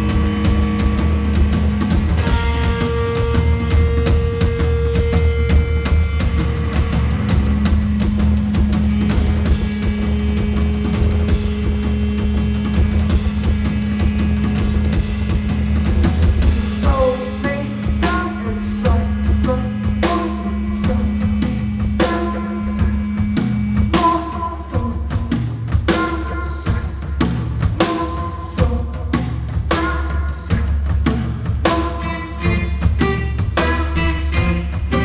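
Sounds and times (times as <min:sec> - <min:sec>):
low drone: 0:00.0 - 0:28.8
drum and cymbal hits: 0:00.0 - 0:35.0
live band music: 0:00.0 - 0:35.0
melodic pitched notes: 0:32.0 - 0:35.0.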